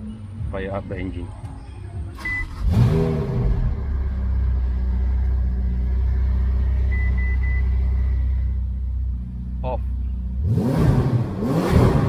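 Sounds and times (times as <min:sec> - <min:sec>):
car engine idling: 0:00.0 - 0:12.0
short electronic beeps: 0:01.7 - 0:02.6, 0:06.9 - 0:07.8.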